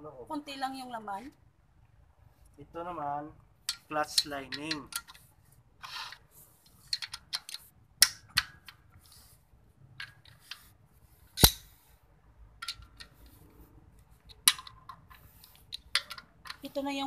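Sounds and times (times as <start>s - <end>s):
socket wrench clinking on bolts: 3.7s - 5.2s, 11.4s - 11.7s, 12.6s - 13.2s, 14.3s - 16.7s.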